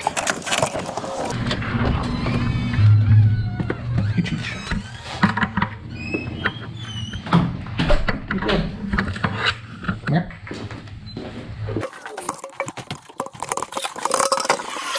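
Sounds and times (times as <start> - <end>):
door opening: 1.4 - 8.8.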